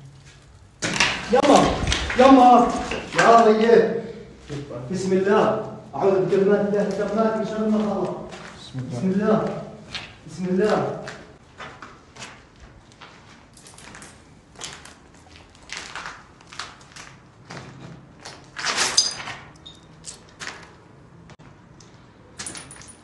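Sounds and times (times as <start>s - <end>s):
feet scuffing on gritty floor: 6.2s - 8.8s.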